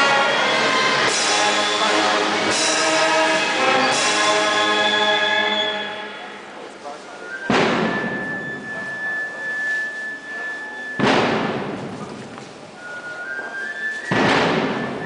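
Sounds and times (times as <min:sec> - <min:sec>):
bass drum and crash cymbals: 0:00.0 - 0:05.0, 0:07.5 - 0:09.4, 0:11.0 - 0:12.1, 0:14.1 - 0:15.0.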